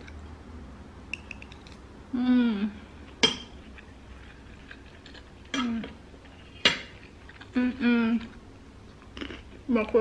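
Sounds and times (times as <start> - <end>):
woman humming mmm: 2.1 - 2.8.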